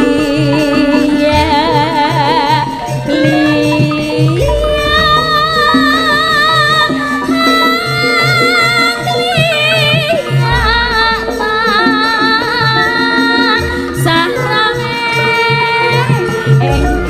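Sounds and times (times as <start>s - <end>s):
woman singing long wavering notes: 0.0s - 17.0s
low drum pattern: 0.9s - 8.0s, 10.4s - 13.2s, 16.6s - 17.0s
deep booming gong strokes: 4.4s - 8.0s, 10.4s - 12.9s.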